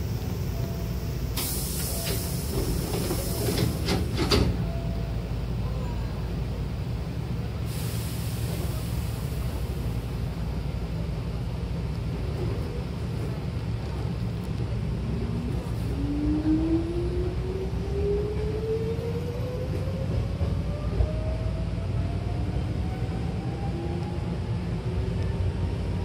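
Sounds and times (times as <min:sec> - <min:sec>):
air hiss of train doors: 0:00.0 - 0:04.6, 0:07.6 - 0:10.2
low hum of stopped train: 0:00.0 - 0:26.0
train doors clunking shut: 0:00.2 - 0:05.2.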